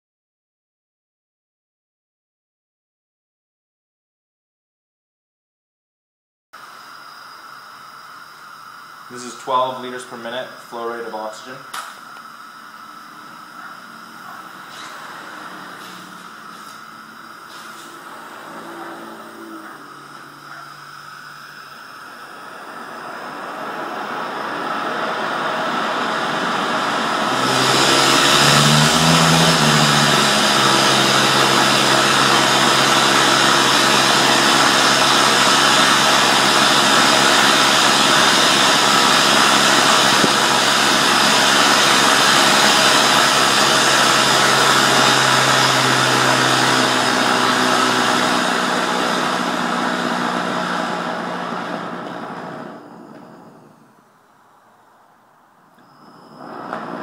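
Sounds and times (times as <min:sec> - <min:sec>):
rocket engine rushing hiss: 0:06.8 - 0:54.2.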